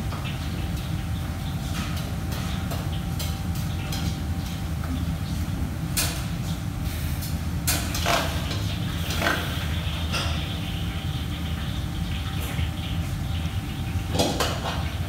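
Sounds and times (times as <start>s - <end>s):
low mechanical hum: 0.0s - 15.0s
utensils and dishes clattering: 7.7s - 10.8s.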